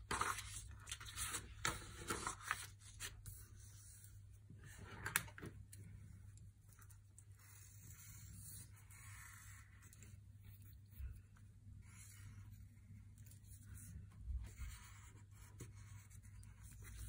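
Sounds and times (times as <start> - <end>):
paper rustling on a cutting mat: 0.0 - 4.1.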